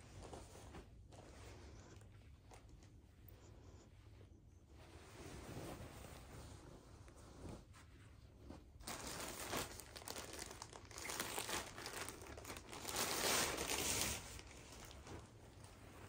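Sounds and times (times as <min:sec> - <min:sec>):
plastic bag crinkling: 0:08.8 - 0:15.7.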